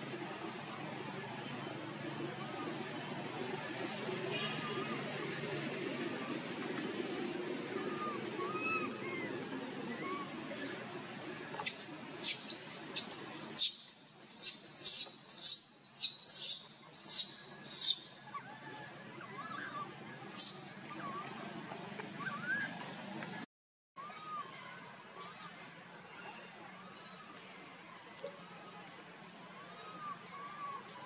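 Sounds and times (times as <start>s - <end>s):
baby monkey screaming: 7.8s - 21.3s.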